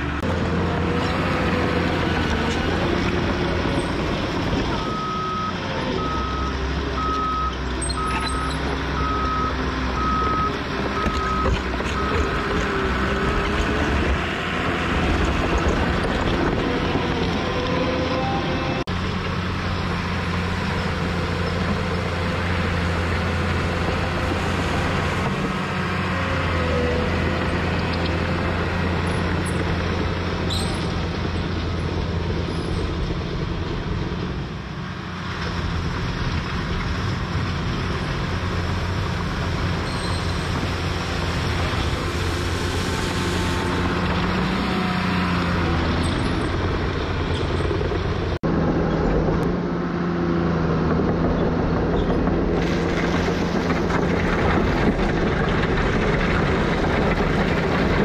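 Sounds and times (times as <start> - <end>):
bulldozer diesel engine running: 0.0 - 58.0
dirt and gravel pushed: 35.9 - 47.6, 51.4 - 58.0.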